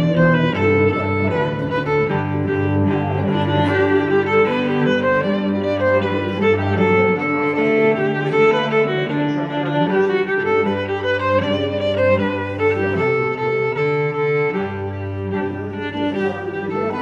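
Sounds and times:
bowed strings music: 0.0 - 17.0.

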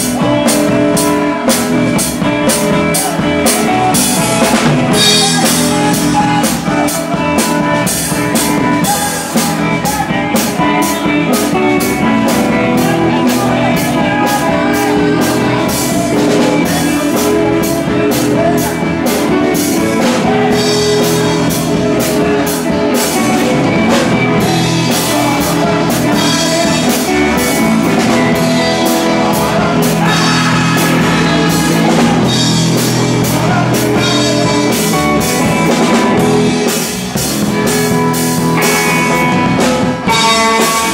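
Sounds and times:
drum kit beat with cymbals: 0.0 - 40.9
electric guitar: 0.0 - 40.9.

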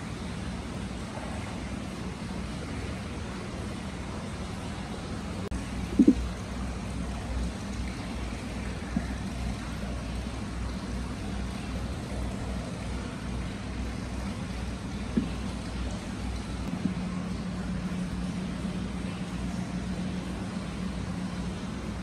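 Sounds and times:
low rumble: 5.9 - 6.3.

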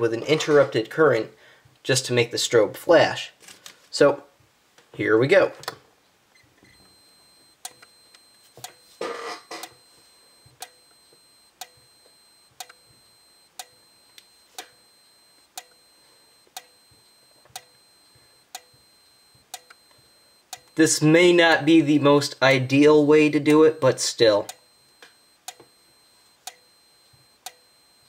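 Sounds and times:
strobe clicking: 6.7 - 8.8, 9.5 - 20.8, 24.5 - 28.0.

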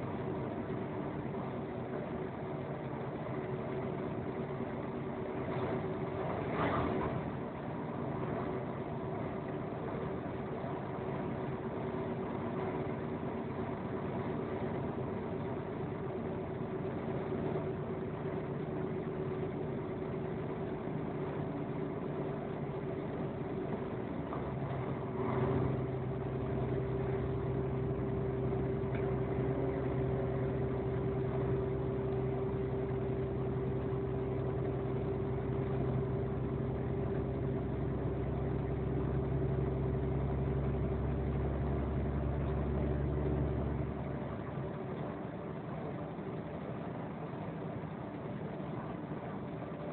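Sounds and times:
deeper engine hum: 0.0 - 49.9.

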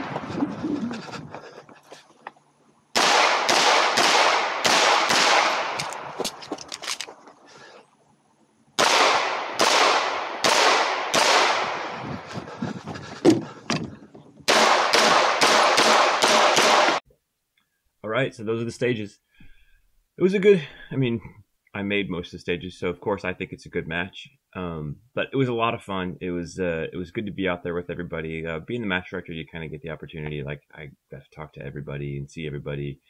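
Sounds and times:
pistol shots with echo: 3.0 - 6.0, 8.8 - 12.0, 14.5 - 17.0.

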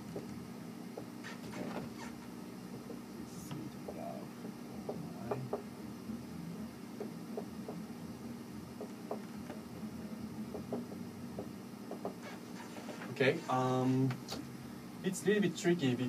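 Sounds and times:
low room hum: 0.0 - 16.0
marker tapping on whiteboard: 3.8 - 5.7, 7.0 - 7.8, 8.8 - 9.6, 10.5 - 12.2.

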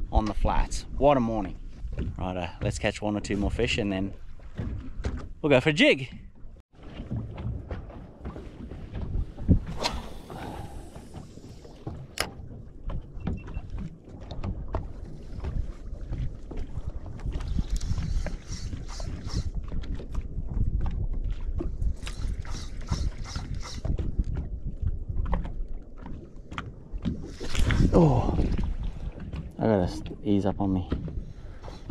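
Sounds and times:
wind and water noise: 0.0 - 31.9
fishing reel winding: 22.0 - 23.8.

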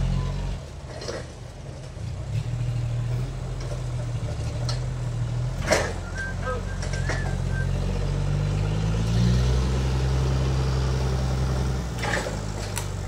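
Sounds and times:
engine running steadily: 0.0 - 13.0
knocks and clanks: 0.6 - 7.5.

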